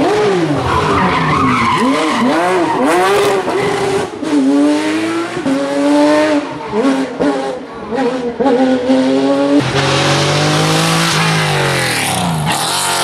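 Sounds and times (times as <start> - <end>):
rally car engine revving: 0.0 - 13.0.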